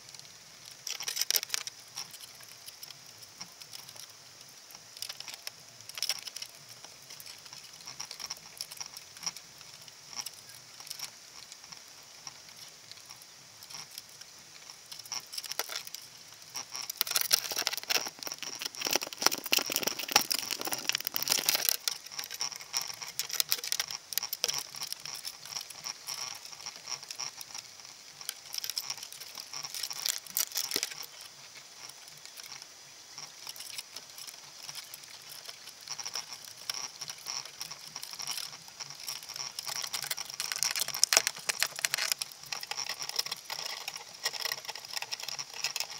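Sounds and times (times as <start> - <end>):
crabs clicking underwater: 0.0 - 45.9
crab scraping against camera: 0.8 - 4.1, 5.0 - 45.9.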